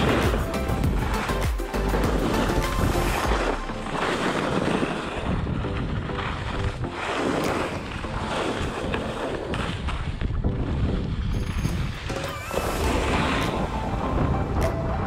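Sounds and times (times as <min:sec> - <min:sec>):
wind on microphone: 0:00.0 - 0:15.0
skis scraping snow: 0:01.1 - 0:05.3.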